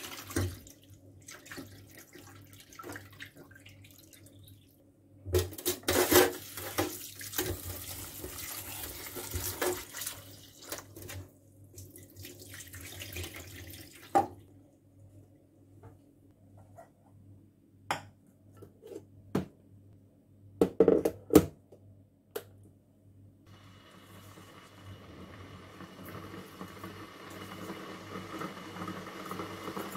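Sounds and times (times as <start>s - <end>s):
water splashing into sink: 0.0s - 4.7s, 5.4s - 14.4s.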